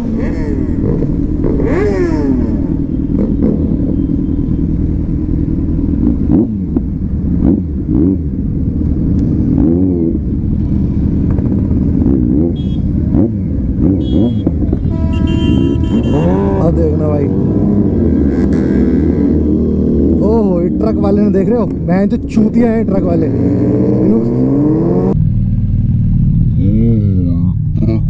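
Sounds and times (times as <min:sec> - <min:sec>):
motorcycle engine: 0:00.0 - 0:28.0
motorcycle throttle blips: 0:11.1 - 0:16.7.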